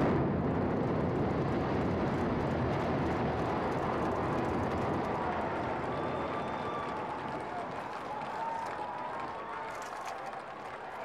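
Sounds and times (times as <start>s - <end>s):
building collapsing rumble: 0.0s - 8.2s.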